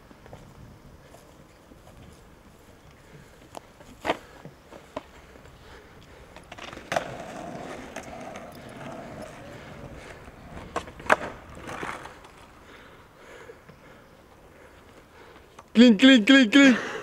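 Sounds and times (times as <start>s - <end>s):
skateboard wheels rolling on concrete: 0.0s - 17.0s
skateboard clacks: 6.3s - 12.6s.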